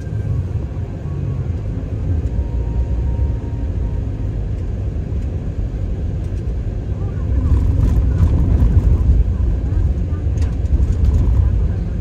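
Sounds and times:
car tyre and engine rumble: 0:00.0 - 0:12.0.

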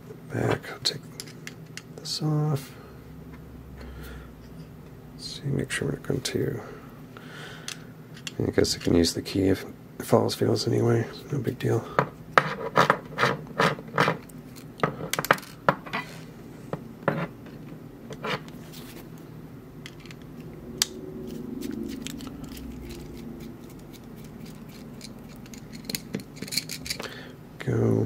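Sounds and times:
metal scratching and rubbing: 0:21.2 - 0:27.0
screwdriver scraping: 0:21.3 - 0:27.0.

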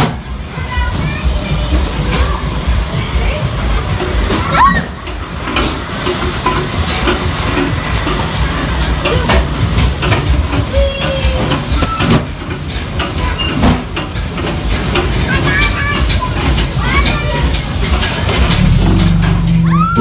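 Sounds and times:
boy talking: 0:00.5 - 0:03.6, 0:15.2 - 0:17.8
low rumble: 0:18.3 - 0:20.0.

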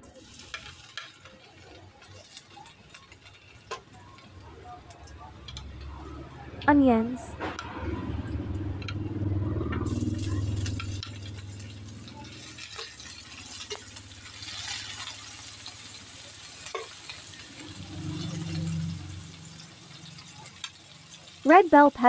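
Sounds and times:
onions sizzling in hot oil: 0:00.0 - 0:07.2, 0:09.2 - 0:22.0
metal spoon scraping pan: 0:10.0 - 0:20.9
low steady hum: 0:17.2 - 0:22.0.

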